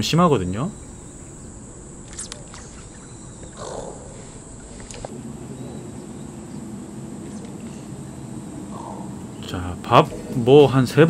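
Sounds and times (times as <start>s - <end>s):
insect chirring: 0.0s - 5.7s
faint clicks: 0.5s - 5.1s.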